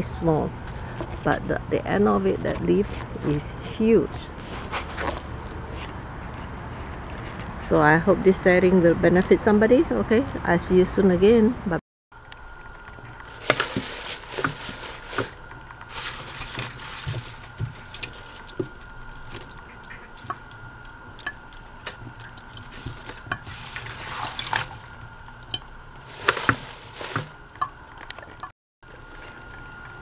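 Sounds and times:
wet leaves being handled: 12.5 - 28.3
water splashing in sink: 13.0 - 20.5, 21.2 - 28.5.

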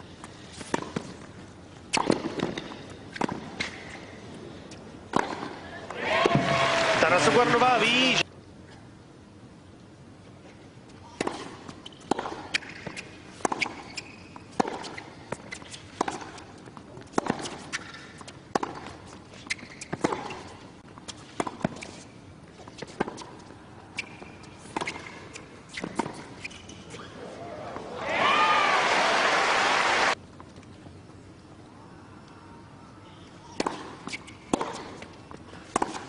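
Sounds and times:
tennis ball bouncing: 0.6 - 4.0, 5.0 - 6.7, 11.2 - 27.1, 33.5 - 36.0
tennis ball hit by racket: 1.9 - 3.8, 5.1 - 6.7, 11.2 - 13.9, 14.5 - 16.4, 17.0 - 18.9, 33.6 - 36.0.

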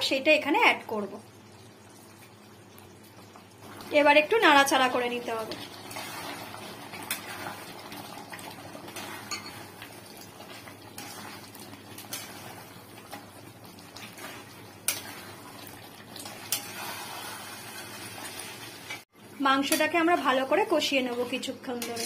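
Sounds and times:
food sizzling in a pan: 0.0 - 22.0
metal spatula scraping a pan: 5.5 - 7.8, 8.8 - 9.7, 11.0 - 11.4, 12.0 - 13.2, 14.0 - 15.5, 16.2 - 19.0, 21.7 - 22.0.

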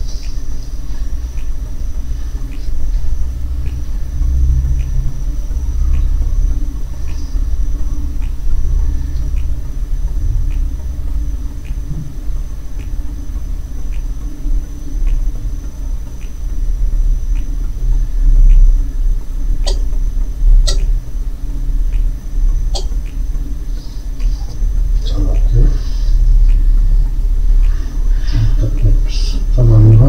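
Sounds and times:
faint high whine: 0.0 - 30.0
light ticking: 0.0 - 30.0
steady low rumble: 0.0 - 30.0.

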